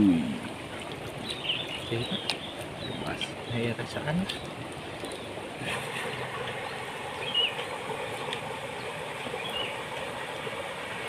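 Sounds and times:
river water rushing: 0:00.0 - 0:11.0
bird chirping: 0:01.2 - 0:03.6, 0:06.6 - 0:07.6, 0:09.4 - 0:09.8.

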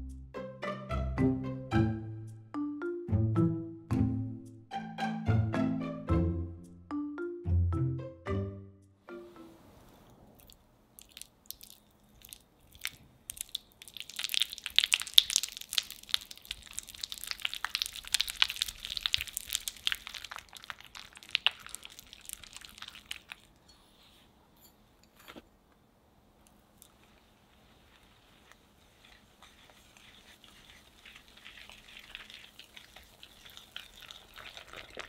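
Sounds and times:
whisk beating butter in glass bowl: 0:29.0 - 0:35.0.

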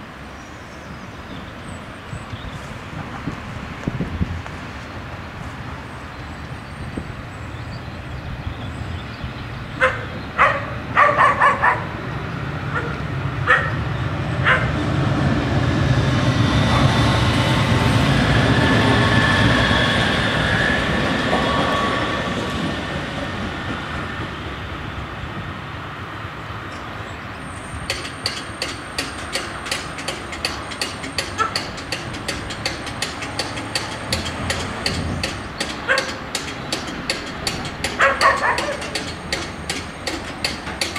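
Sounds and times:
tram passing with whine: 0:00.0 - 0:40.9
dog barking: 0:09.8 - 0:11.9, 0:12.7 - 0:13.8, 0:14.4 - 0:14.7, 0:35.9 - 0:36.2, 0:38.0 - 0:38.9.

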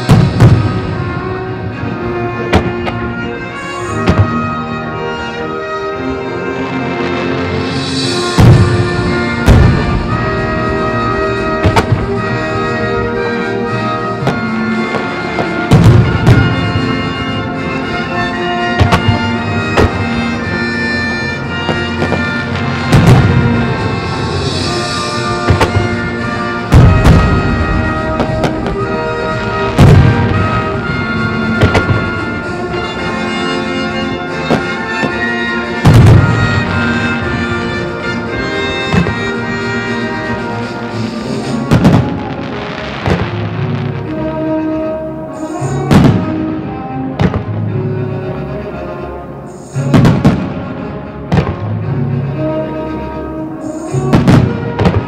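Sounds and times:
deep firework booms: 0:00.0 - 0:01.4, 0:07.7 - 0:12.6, 0:14.2 - 0:17.4, 0:18.8 - 0:20.2, 0:21.7 - 0:33.0, 0:35.8 - 0:37.7, 0:41.7 - 0:44.2, 0:45.9 - 0:46.6, 0:47.2 - 0:47.6, 0:51.3 - 0:51.7, 0:54.1 - 0:55.0
orchestral music over loudspeakers: 0:00.0 - 0:55.0.

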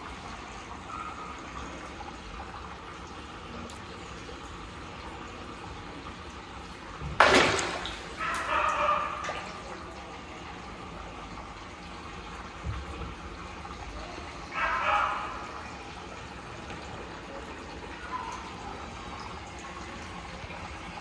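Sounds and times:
running water: 0:00.0 - 0:21.0
fish splashing at water surface: 0:07.0 - 0:10.0.

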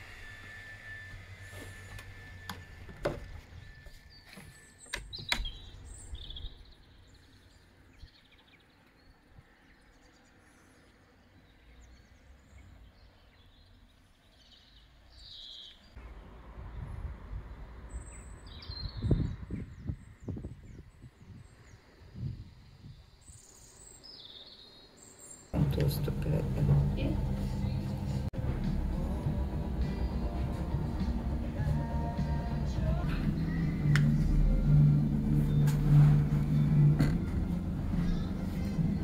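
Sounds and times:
small birds chirping: 0:03.8 - 0:16.0, 0:17.8 - 0:26.4
low rumbling noise: 0:16.0 - 0:23.0, 0:25.6 - 0:39.0.

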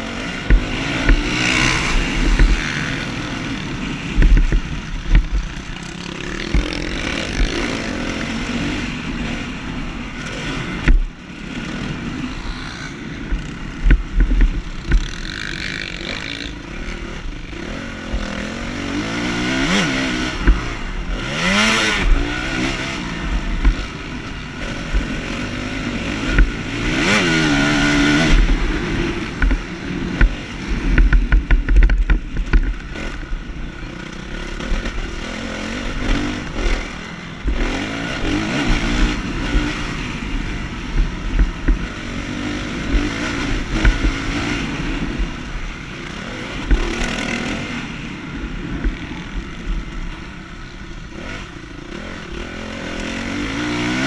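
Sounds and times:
motocross bike engine revving: 0:00.0 - 0:54.0
knocks from rough track: 0:00.4 - 0:02.9, 0:04.2 - 0:07.7, 0:42.8 - 0:44.6.

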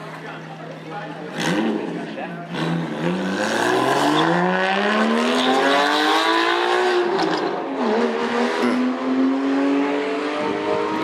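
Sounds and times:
car engine accelerating hard: 0:01.3 - 0:11.0.

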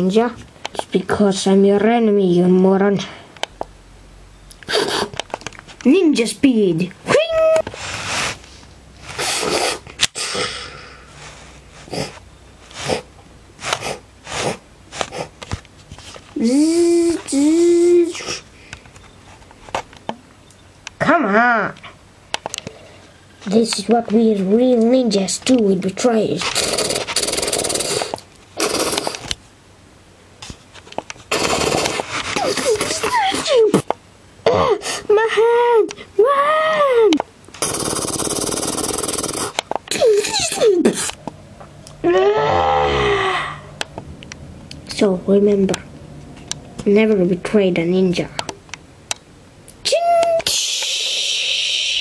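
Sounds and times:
breathy mouth sound effects: 0:04.6 - 0:05.2, 0:09.2 - 0:11.2, 0:26.5 - 0:29.3, 0:31.3 - 0:32.9, 0:37.6 - 0:41.2, 0:50.5 - 0:52.0.

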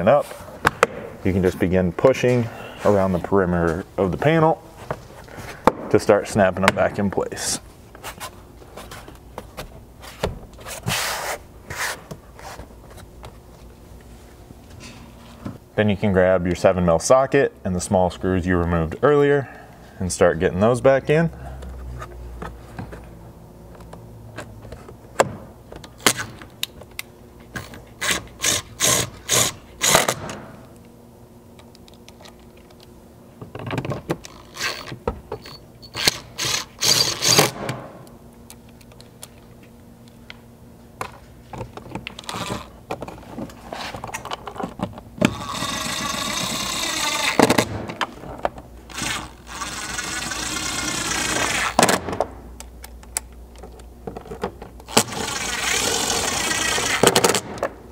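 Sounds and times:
cordless driver running screws: 0:27.6 - 0:30.2, 0:34.3 - 0:37.6, 0:48.9 - 0:51.8.

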